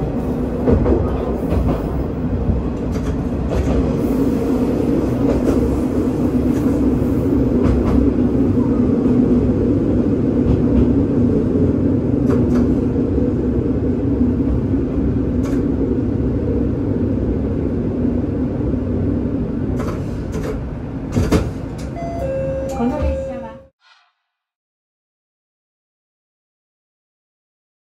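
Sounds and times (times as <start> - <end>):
train wheel rumble: 0.0 - 23.6
railcar engine drone: 0.0 - 23.8
rail-joint clicks: 2.7 - 4.0, 7.6 - 8.1, 12.2 - 12.9, 15.4 - 15.8, 19.7 - 23.6.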